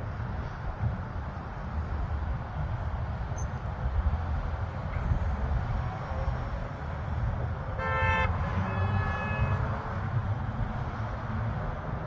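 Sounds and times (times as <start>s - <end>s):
steady low rumble: 0.0s - 7.8s
vehicle horn tooting: 7.8s - 9.8s.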